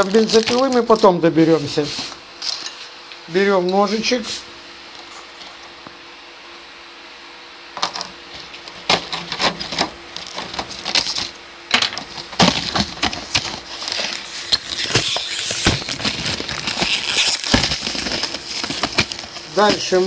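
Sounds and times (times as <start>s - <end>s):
foil sachet crinkling: 0.0s - 2.2s, 8.4s - 11.4s, 12.0s - 20.0s.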